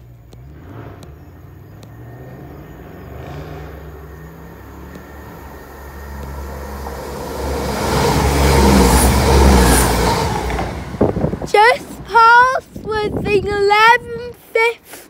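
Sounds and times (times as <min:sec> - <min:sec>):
train engine drone: 0:00.0 - 0:12.9
train wheels on rails: 0:03.1 - 0:12.9.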